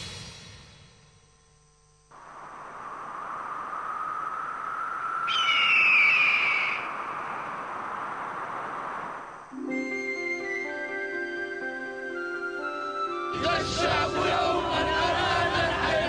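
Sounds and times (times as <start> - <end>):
outdoor nature ambience hiss: 0.0 - 16.0
loud falling bird cry: 3.7 - 8.6.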